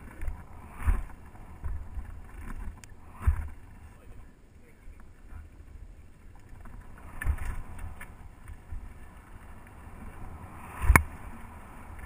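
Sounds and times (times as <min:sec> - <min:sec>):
bike tyres rolling over dirt: 0:00.0 - 0:12.0
wind on microphone: 0:05.2 - 0:12.0.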